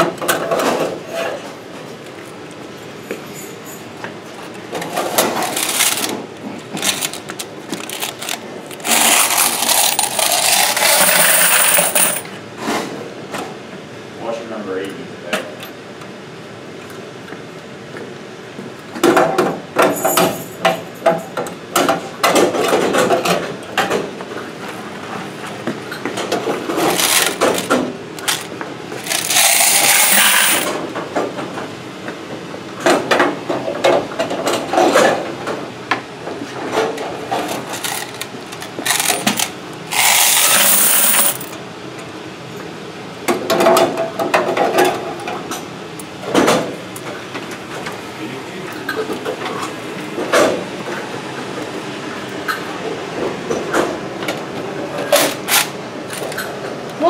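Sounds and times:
metal coin boxes clanking: 4.8 - 12.3, 26.8 - 30.8, 37.7 - 41.6
coins pouring and jingling: 7.9 - 12.2, 26.9 - 27.7, 29.0 - 30.7, 39.9 - 41.5.

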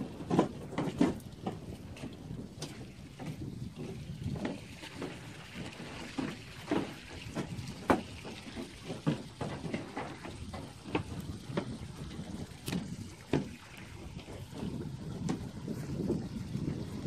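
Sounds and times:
footsteps on a dock: 0.0 - 17.0.

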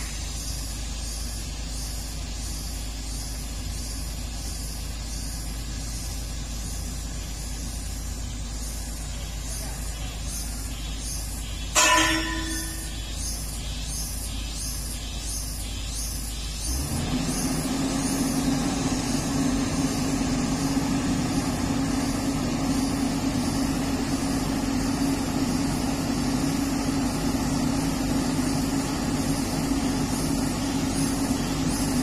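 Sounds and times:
excavator running: 0.0 - 32.0
loud metallic clang: 11.8 - 13.2.

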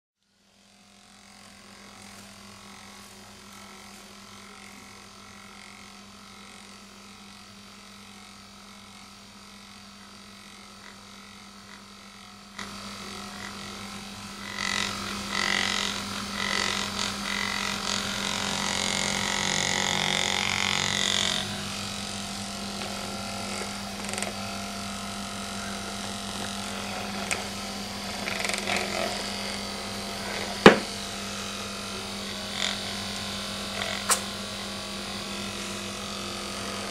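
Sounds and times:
massager buzzing: 0.2 - 36.9
sharp click: 34.0 - 34.3.

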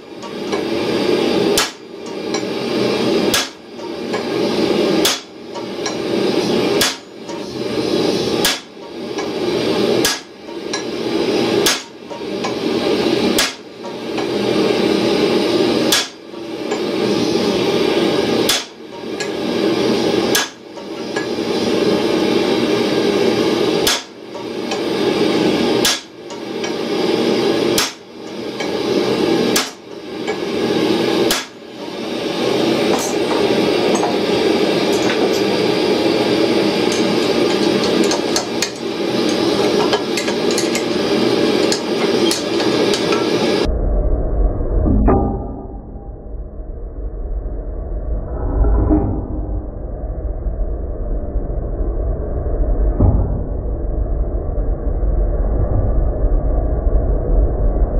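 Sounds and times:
steady noise: 0.0 - 56.2
hammer striking metal on anvil: 5.0 - 6.0.

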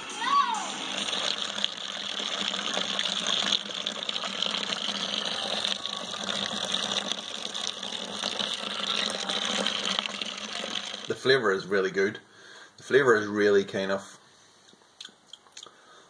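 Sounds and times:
liquid pouring into a bucket: 0.7 - 11.6.

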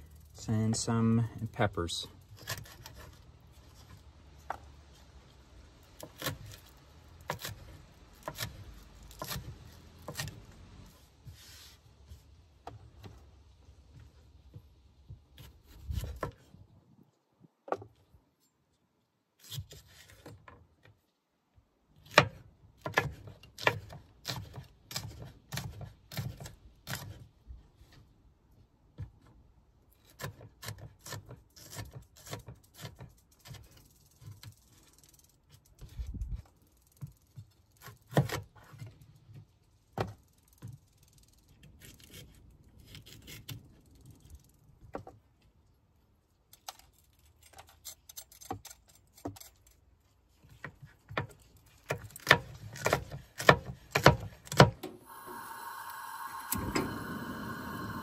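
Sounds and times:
gas burner hissing: 54.8 - 58.0.

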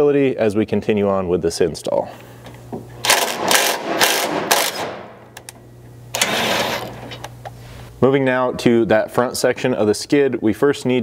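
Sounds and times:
cordless impact wrench bursts: 3.0 - 5.2, 6.1 - 7.2.

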